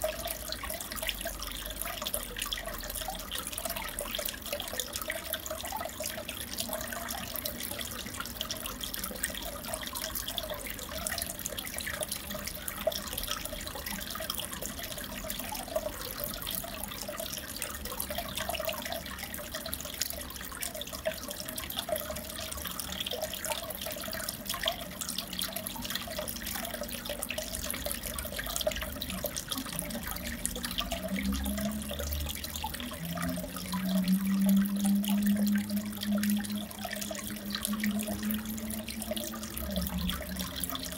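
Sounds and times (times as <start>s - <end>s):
water trickling and bubbling: 0.0s - 40.9s
low hum: 30.6s - 40.9s.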